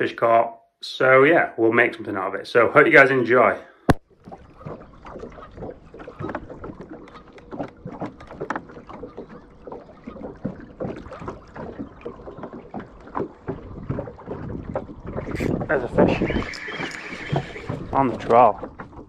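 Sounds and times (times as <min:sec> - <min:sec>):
water slapping against boat hull: 0:03.9 - 0:19.0.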